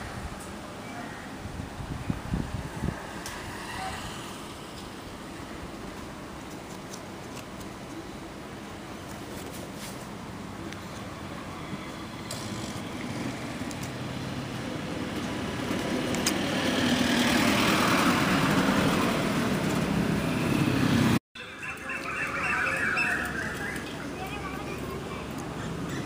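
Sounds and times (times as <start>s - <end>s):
road traffic noise: 0.0s - 26.0s
faint high chirps: 21.4s - 24.4s.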